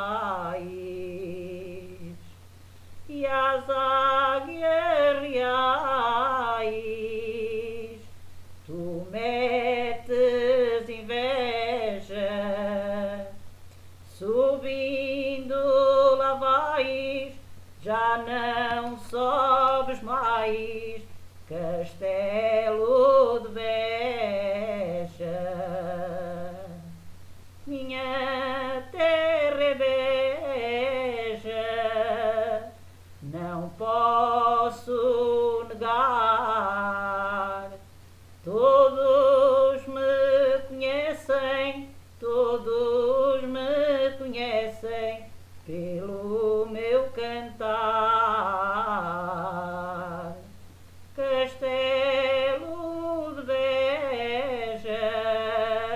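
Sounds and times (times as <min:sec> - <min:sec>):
steady low hum: 0:00.0 - 0:55.9
woman singing unaccompanied: 0:00.0 - 0:55.9.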